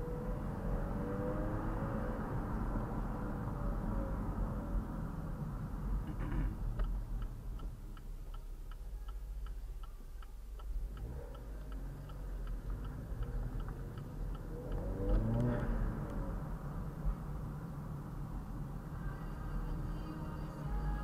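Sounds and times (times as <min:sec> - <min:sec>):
turn signal clicking: 0:06.1 - 0:17.2.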